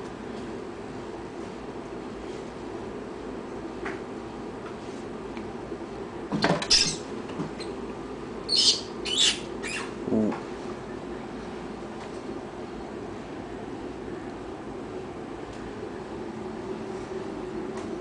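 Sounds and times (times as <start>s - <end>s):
rat squealing: 6.6s - 7.8s, 8.4s - 10.1s.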